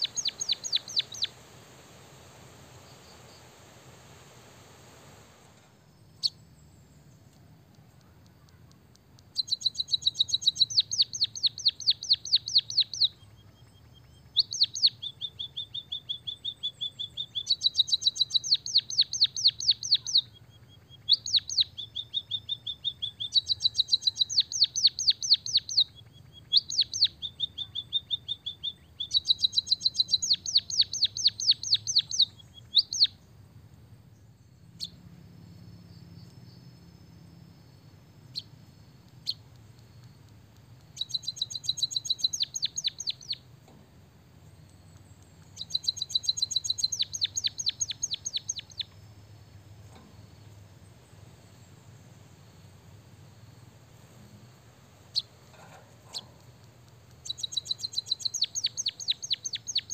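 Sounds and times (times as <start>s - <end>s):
sharp bird chip: 0.0s - 1.4s, 45.0s - 48.9s, 55.1s - 59.9s
bird singing rolling trills: 0.0s - 59.9s.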